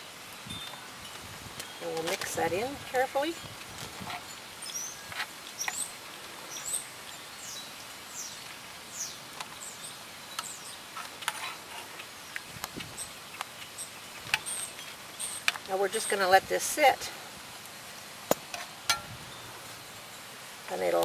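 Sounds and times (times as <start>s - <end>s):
birds chirping: 0.0s - 17.0s
outdoor hiss: 0.0s - 21.0s
metal spoon scraping skillet: 11.0s - 12.1s.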